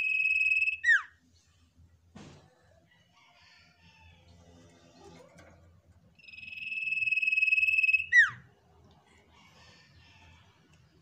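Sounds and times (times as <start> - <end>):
bird chirps: 0.0 - 1.1, 6.2 - 8.4
bird whistling: 0.0 - 1.1, 6.2 - 8.4.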